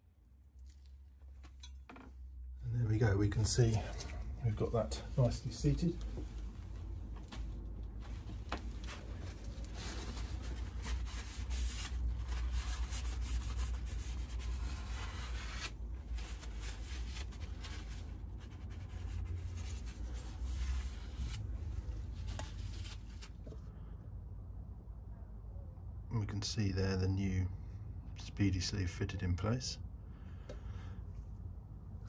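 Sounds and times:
tissue rubbing on metal: 3.3 - 23.4.

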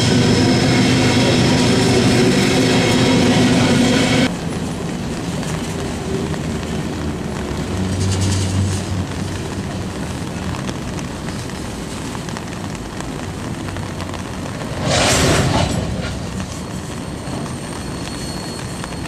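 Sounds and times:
rush of noise: 0.0 - 10.6, 14.3 - 19.0
freight train wheels rumbling: 0.0 - 19.0.

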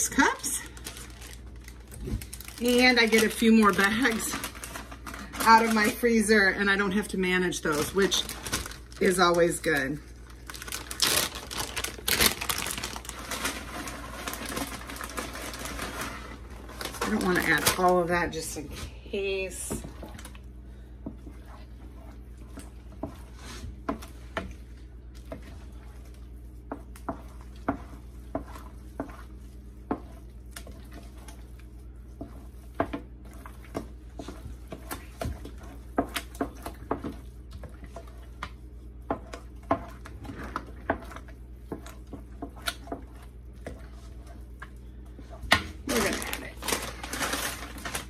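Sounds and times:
steady low hum: 0.0 - 48.0
spoon stirring thick sauce: 19.8 - 45.5.

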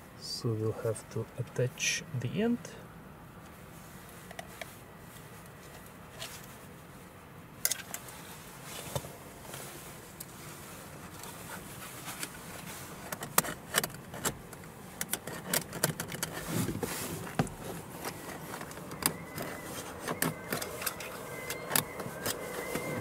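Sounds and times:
faint high whine: 16.6 - 23.0.

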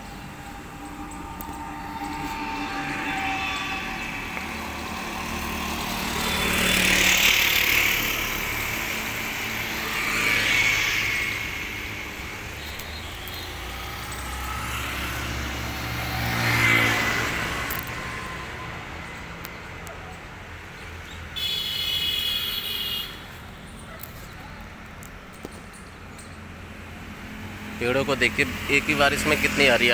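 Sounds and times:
motor scooter passing: 0.0 - 19.8
vehicles passing: 0.0 - 29.9.

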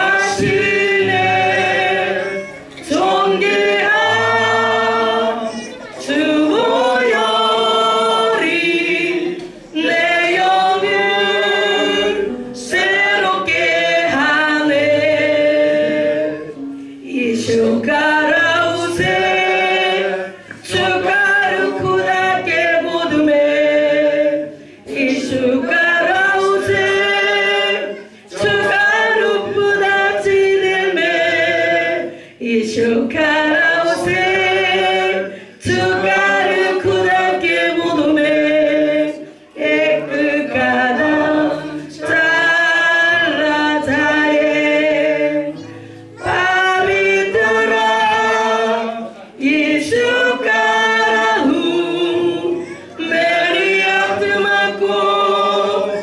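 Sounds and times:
group singing a hymn unaccompanied: 0.0 - 56.0.

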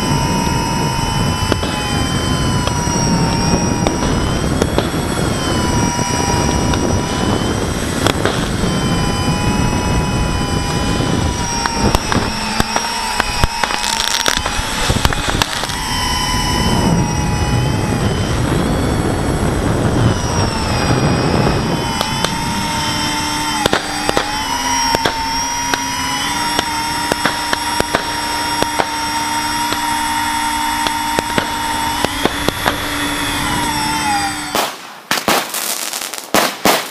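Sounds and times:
drone propellers whining: 0.0 - 36.1
fireworks cracks and pops: 1.5 - 1.8, 2.6 - 5.3, 8.0 - 8.6, 11.5 - 15.8, 23.6 - 25.9, 26.5 - 29.0, 30.8 - 32.9, 34.5 - 36.9.

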